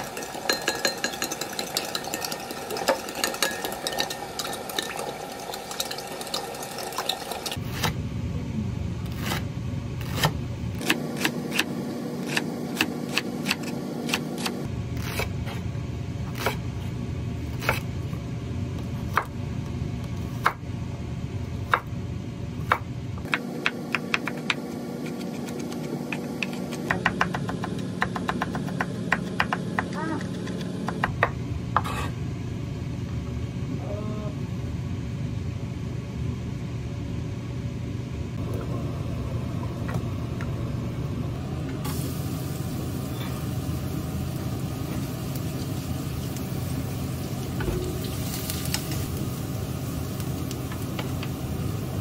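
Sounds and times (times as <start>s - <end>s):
spoon clinking in glass mug: 0.2s - 5.1s.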